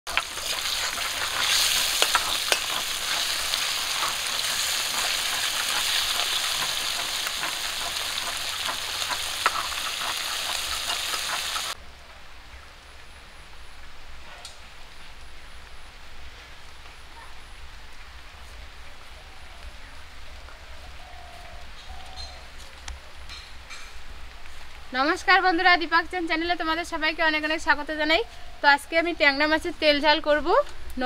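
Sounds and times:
fish sizzling in hot oil: 0.1s - 11.8s.

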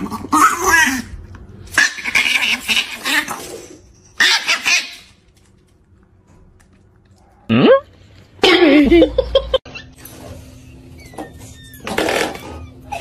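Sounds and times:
pet animal vocalising: 1.7s - 3.4s.

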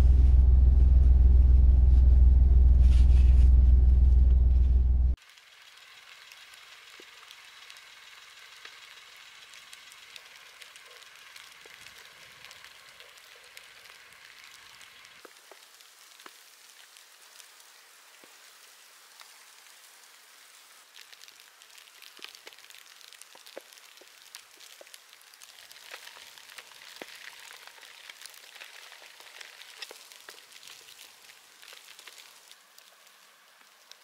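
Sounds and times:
falling snow patter: 5.1s - 34.0s.

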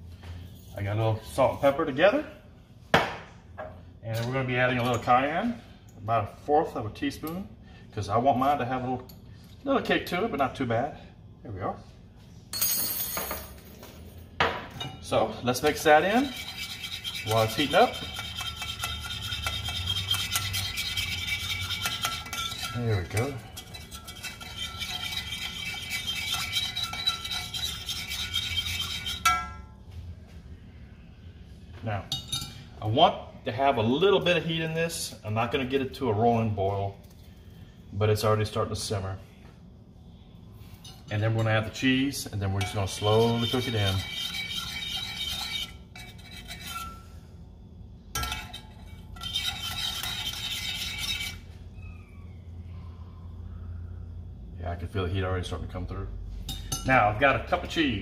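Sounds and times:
wire whisk scraping metal pan: 15.5s - 29.6s, 42.4s - 47.2s, 48.2s - 51.5s.

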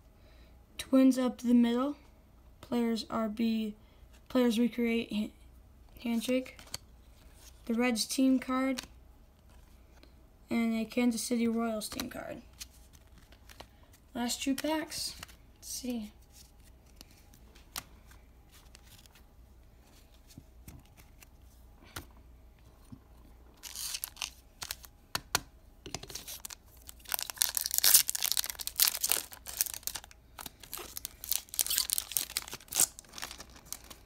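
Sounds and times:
card pack being torn open: 23.6s - 24.9s, 26.1s - 34.0s
wrapper crinkling: 23.6s - 24.9s, 26.0s - 34.0s.

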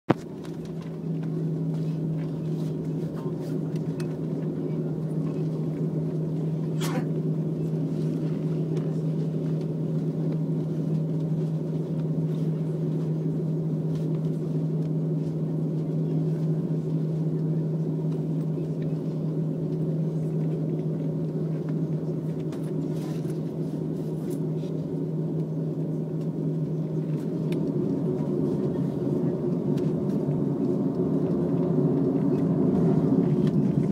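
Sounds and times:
jet engines droning in cabin: 0.1s - 33.9s.

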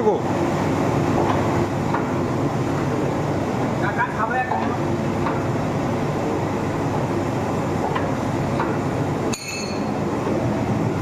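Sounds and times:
roasting drum rumbling: 0.0s - 11.0s
high metallic clink: 9.3s - 9.9s.

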